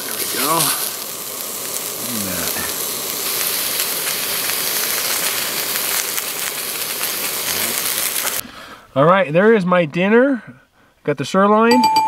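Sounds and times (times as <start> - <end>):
steak sizzling in a frying pan: 0.0 - 8.4.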